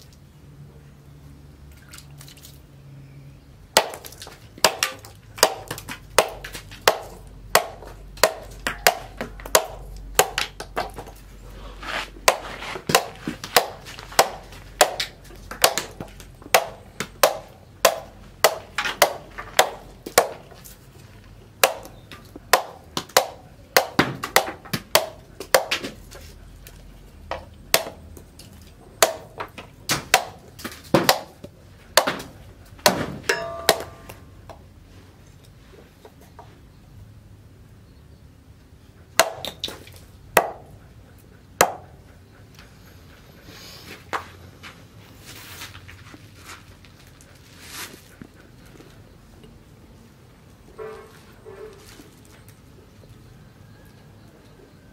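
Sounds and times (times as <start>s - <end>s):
machete chopping bamboo: 3.7s - 11.2s, 12.2s - 20.8s, 21.6s - 26.3s, 27.3s - 34.3s, 39.1s - 40.7s, 41.6s - 41.9s.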